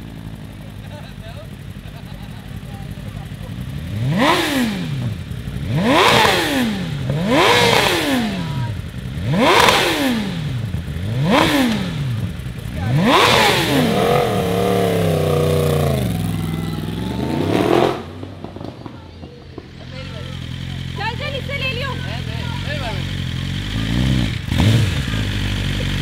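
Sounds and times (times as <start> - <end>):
motorcycle engine revving: 0.0 - 26.0.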